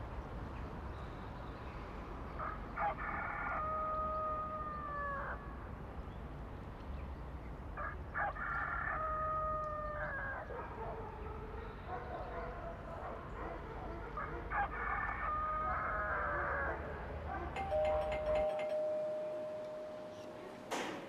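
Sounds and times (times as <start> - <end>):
rooster crowing: 2.8 - 5.4, 7.8 - 10.5, 14.5 - 16.9.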